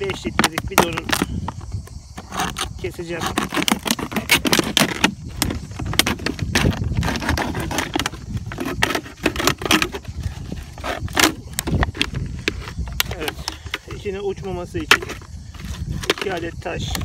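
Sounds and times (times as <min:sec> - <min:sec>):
knife cutting crackling plastic bottle: 0:00.0 - 0:01.6, 0:02.2 - 0:13.9.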